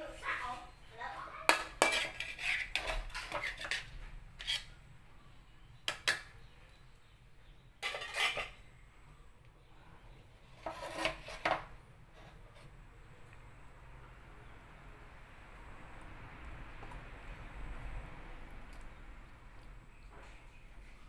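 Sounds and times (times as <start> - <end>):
metal spatula scraping a wok: 1.5 - 4.8, 7.8 - 8.7, 10.5 - 12.4.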